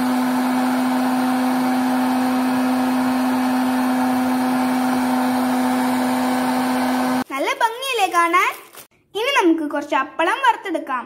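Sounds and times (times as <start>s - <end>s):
popcorn maker fan humming: 0.0s - 7.3s.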